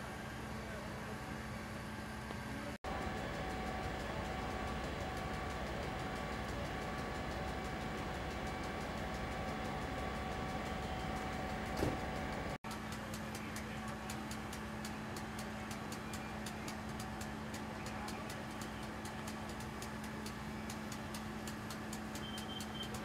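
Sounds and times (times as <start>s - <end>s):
fire engine humming: 0.0s - 23.0s
fast light ticking: 12.4s - 23.0s.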